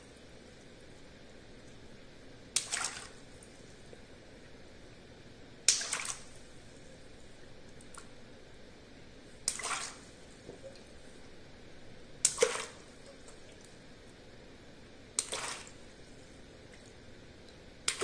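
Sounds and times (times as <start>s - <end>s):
water splashing and dripping: 2.5s - 3.3s, 5.7s - 6.4s, 9.4s - 10.9s, 12.2s - 13.8s, 15.2s - 16.0s, 16.7s - 18.0s.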